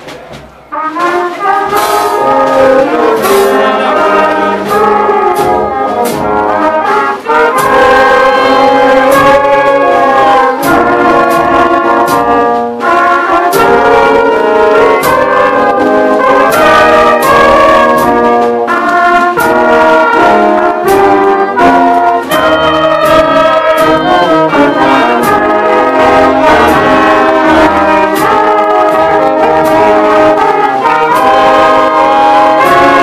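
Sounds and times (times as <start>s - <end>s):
steady drum beat: 0.0s - 33.0s
wind band playing a tune: 0.0s - 33.0s.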